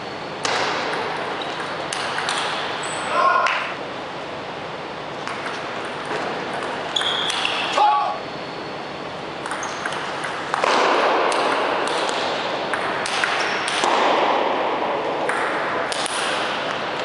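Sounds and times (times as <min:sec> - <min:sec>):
table tennis ball clicking: 0:09.4 - 0:10.6.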